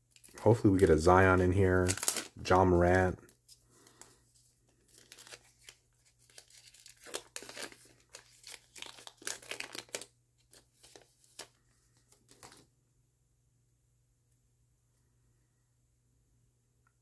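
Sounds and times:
foil wrapper tearing and crinkling: 1.6 - 2.6, 4.7 - 12.6.

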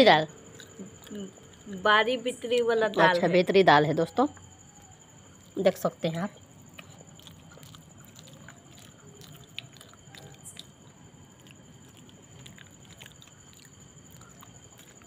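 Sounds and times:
people chewing: 0.0 - 1.9, 2.8 - 3.4, 6.3 - 15.0.

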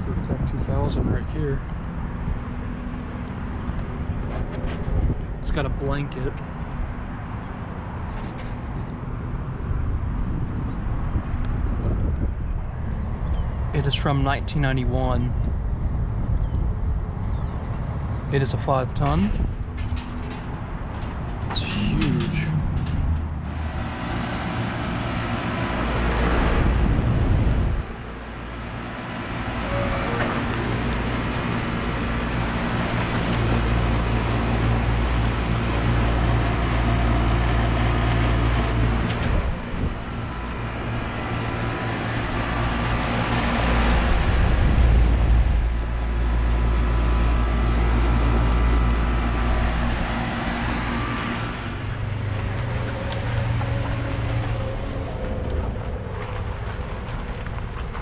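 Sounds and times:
wind rumbling on microphone: 0.0 - 58.0
compressor hum: 18.1 - 58.0
fan whoosh: 21.4 - 37.8.

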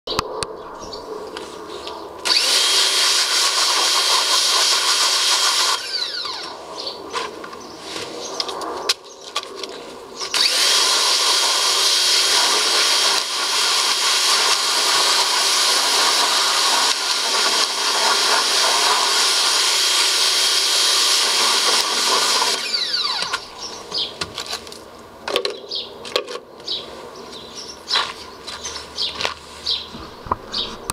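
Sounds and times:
birds chirping: 0.0 - 2.3, 6.1 - 10.6, 22.8 - 30.9
pressure washer water jet hissing: 2.2 - 6.5, 10.3 - 23.6.

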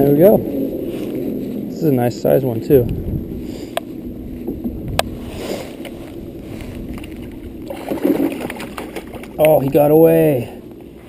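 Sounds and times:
water lapping at wooden dock: 4.3 - 11.0
fish splashing: 5.1 - 9.9.

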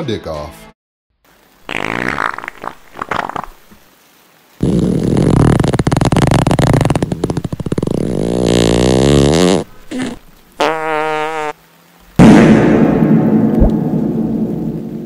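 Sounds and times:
steady rain: 1.2 - 15.0
fart sound effect: 1.6 - 3.8, 4.6 - 11.6
thunder clap: 12.2 - 15.0.

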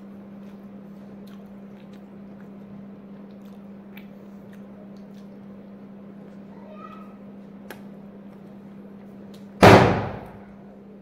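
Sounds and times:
person chewing: 0.0 - 6.5
steady low hum: 0.0 - 11.0.

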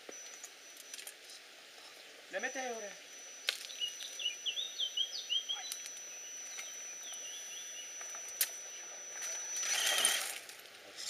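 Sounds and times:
faint high whine: 0.0 - 11.0
small bird chirping: 3.0 - 10.1.

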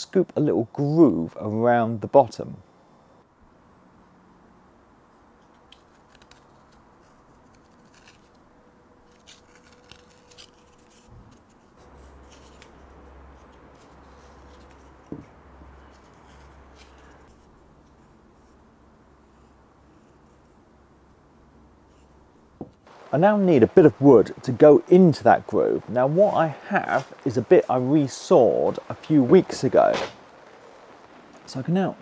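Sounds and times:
carving tool scraping wood: 5.7 - 8.4, 9.1 - 18.6
sharp knock: 29.9 - 30.2.

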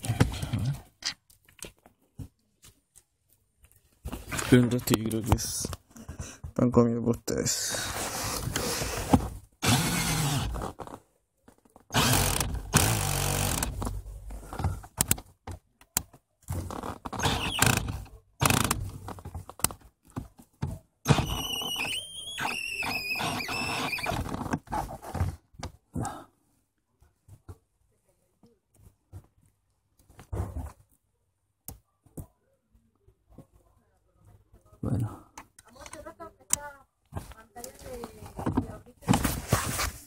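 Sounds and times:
cordless drill driving a screw: 9.6 - 10.6, 11.9 - 13.7, 17.2 - 18.8, 21.1 - 24.2
wavering squeal: 21.1 - 24.2.

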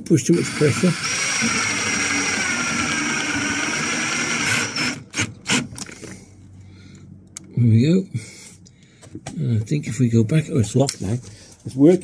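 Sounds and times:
cordless drill driving a screw: 0.3 - 5.7.

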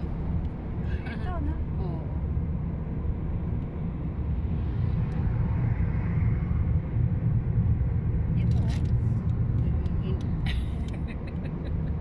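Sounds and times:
car cabin road noise: 0.0 - 12.0.

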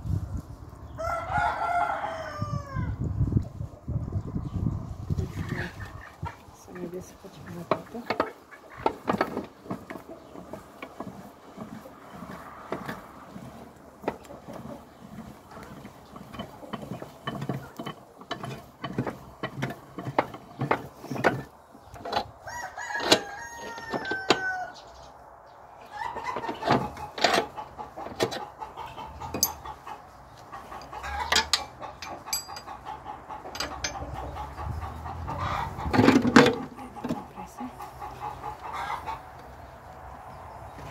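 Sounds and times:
rooster crowing: 1.0 - 3.0, 22.4 - 24.8
hens clucking: 5.1 - 25.0, 25.8 - 40.9.

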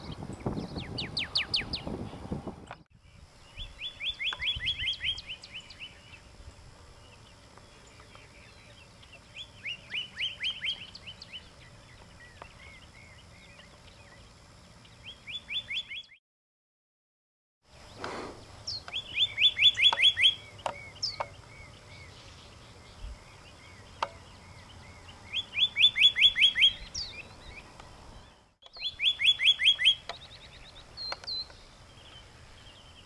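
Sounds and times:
bird singing whistled notes: 0.0 - 2.3, 3.0 - 6.3, 7.0 - 16.2, 18.7 - 33.0.

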